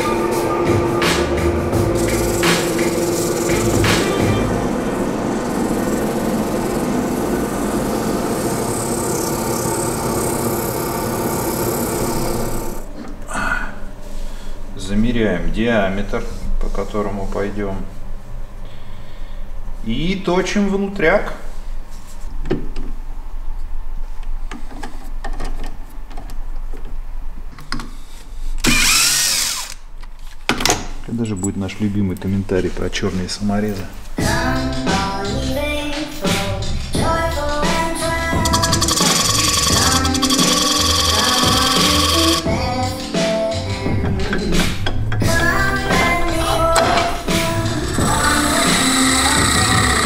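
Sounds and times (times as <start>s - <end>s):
wood lathe running: 1.0s - 12.9s, 28.7s - 29.8s, 38.4s - 42.5s, 47.2s - 50.0s
sandpaper sanding hiss: 1.9s - 4.5s, 38.5s - 42.4s
cordless drill whirring: 5.5s - 12.9s, 28.6s - 29.8s, 38.4s - 42.5s, 48.0s - 50.0s.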